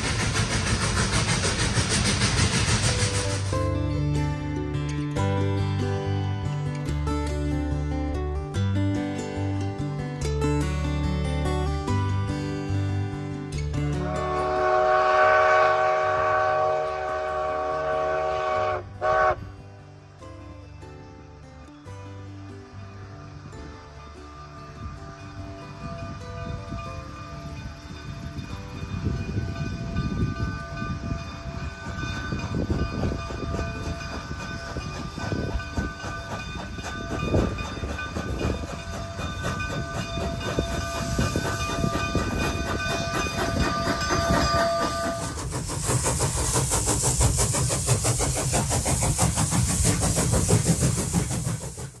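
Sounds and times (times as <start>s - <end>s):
loud hissing rush: 0.0s - 3.8s, 32.5s - 52.0s
steam locomotive exhaust rumble: 0.0s - 6.5s, 12.7s - 19.6s, 22.8s - 52.0s.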